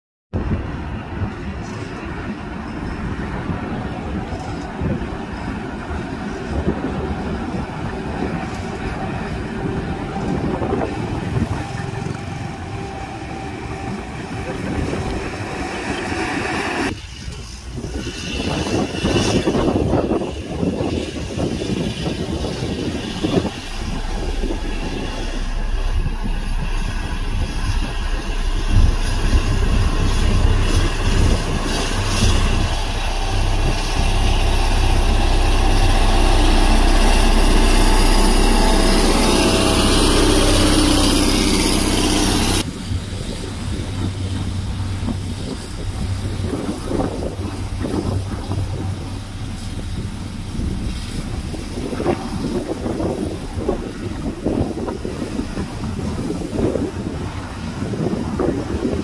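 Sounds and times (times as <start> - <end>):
diesel engine running: 22.4 - 56.5.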